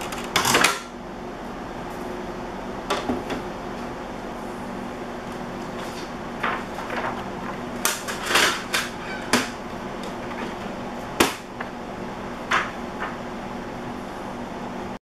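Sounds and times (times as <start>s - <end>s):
steady low hum: 0.0s - 15.0s
paper rustling: 5.6s - 9.3s.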